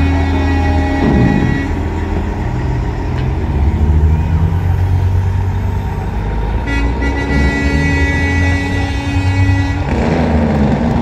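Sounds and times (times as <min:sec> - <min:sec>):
truck air horn: 0:00.0 - 0:03.6, 0:06.5 - 0:10.2
diesel truck engines: 0:00.0 - 0:11.0.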